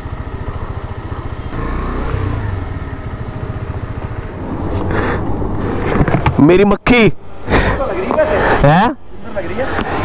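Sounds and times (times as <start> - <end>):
motorcycle engine running: 0.0 - 5.6.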